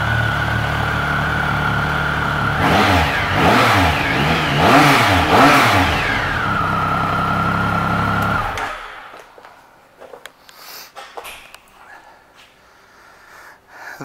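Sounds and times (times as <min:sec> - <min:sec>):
motorcycle engine revving and idling: 0:00.0 - 0:09.2.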